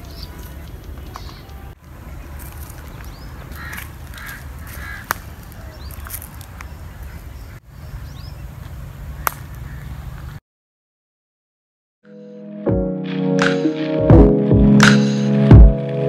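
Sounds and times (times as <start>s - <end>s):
crow cawing: 3.5s - 5.2s
sharp snaps: 9.2s - 9.6s.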